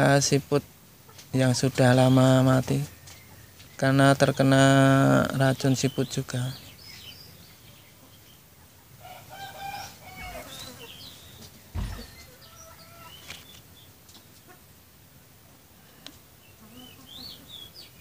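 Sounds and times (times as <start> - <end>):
small birds chirping: 0.1 - 18.0
chickens clucking: 1.0 - 18.0
dull thump: 11.7 - 12.3.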